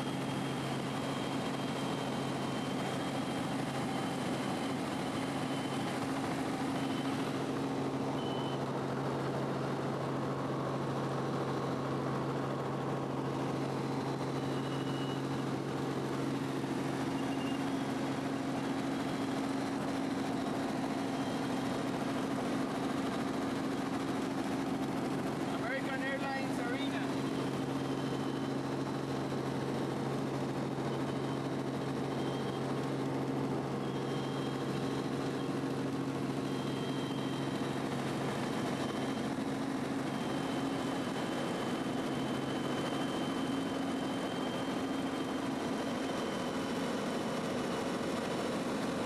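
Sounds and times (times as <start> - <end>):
helicopter engine and rotors droning: 0.0 - 49.0.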